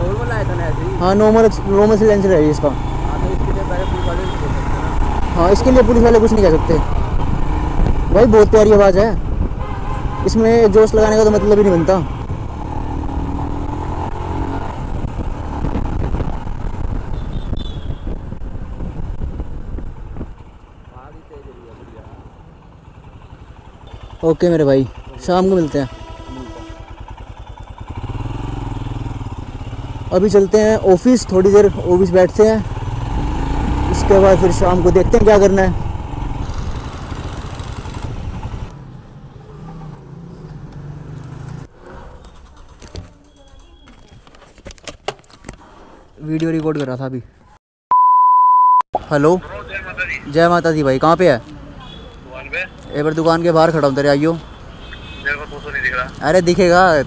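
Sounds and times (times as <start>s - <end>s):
road traffic: 0.0s - 47.6s, 48.9s - 57.0s
motorcycle engine running: 11.7s - 44.0s.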